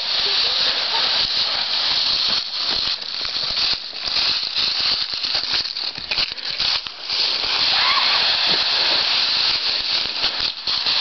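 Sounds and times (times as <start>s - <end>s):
steady hiss: 0.0s - 11.0s
dry leaves rustling and crunching: 2.7s - 11.0s.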